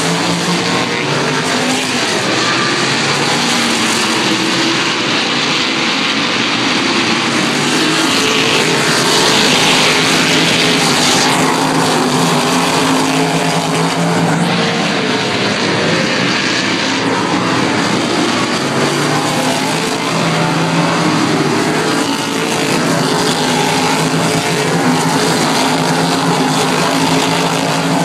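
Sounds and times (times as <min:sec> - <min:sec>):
race car engines running hard: 0:00.0 - 0:28.0.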